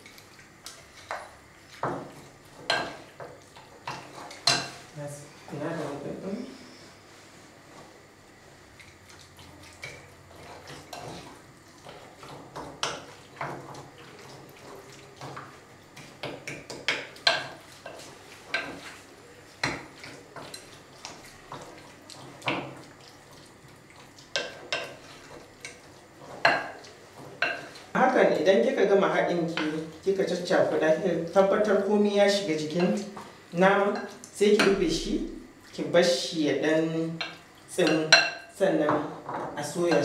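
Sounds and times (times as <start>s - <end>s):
wooden spatula scraping a bowl: 9.1s - 23.4s.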